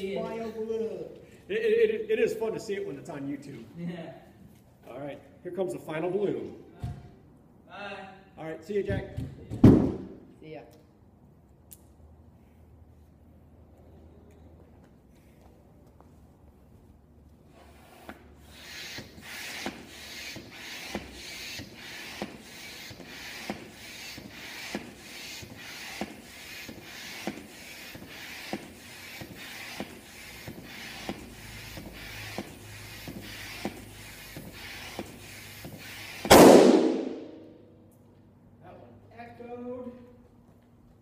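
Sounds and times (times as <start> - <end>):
hand air pump strokes: 17.4 - 36.3
balloon bursting with loud pop: 35.7 - 37.5.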